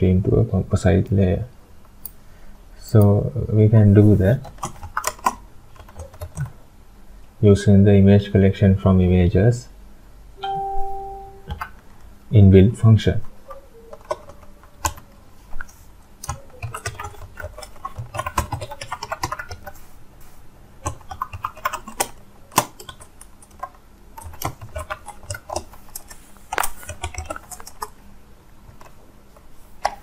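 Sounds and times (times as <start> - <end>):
keyboard typing clicks: 10.4 - 11.9.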